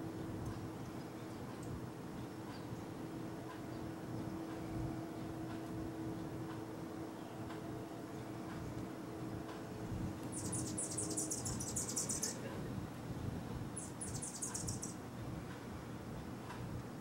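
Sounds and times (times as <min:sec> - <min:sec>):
hummingbirds chattering: 0:10.2 - 0:13.0, 0:13.7 - 0:15.0.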